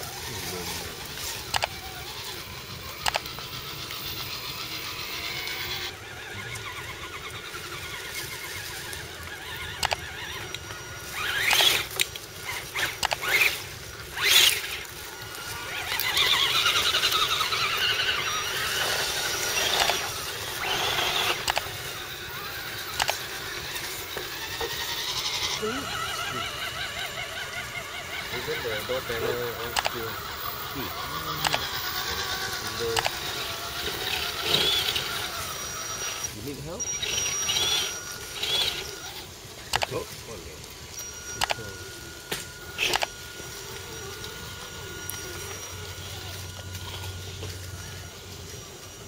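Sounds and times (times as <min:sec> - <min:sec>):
rc truck motor whining: 0:00.0 - 0:49.0.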